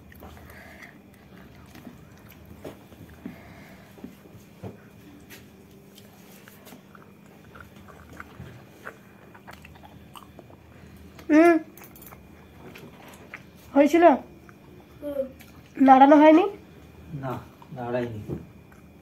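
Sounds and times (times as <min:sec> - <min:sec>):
person chewing: 0:00.0 - 0:04.2, 0:05.2 - 0:13.6, 0:14.4 - 0:15.8
faint steady hum: 0:00.0 - 0:19.0.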